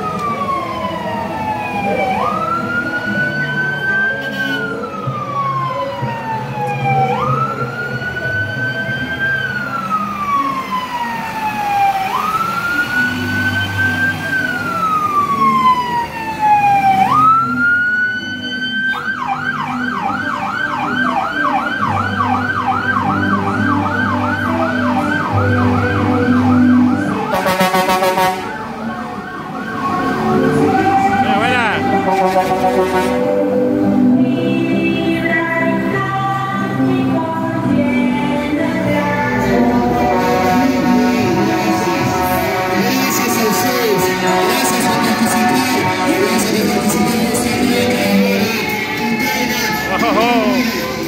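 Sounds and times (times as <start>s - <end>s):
ambulance siren: 0.0s - 51.0s
vehicle engines rumbling: 0.0s - 51.0s
harsh horn blast: 4.2s - 4.7s, 27.3s - 28.6s, 31.3s - 33.5s.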